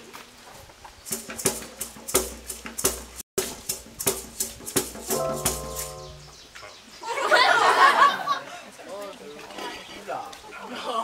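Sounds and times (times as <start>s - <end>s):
music with steady drum beat: 1.0s - 6.4s
held low synth note: 5.1s - 6.4s.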